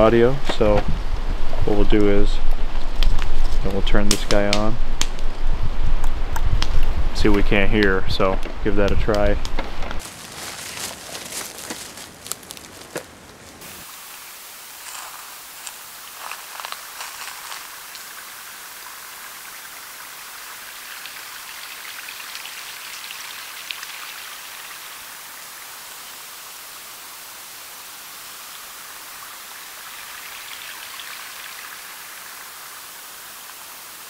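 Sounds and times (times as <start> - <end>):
outdoor ambience hiss: 0.0 - 34.0.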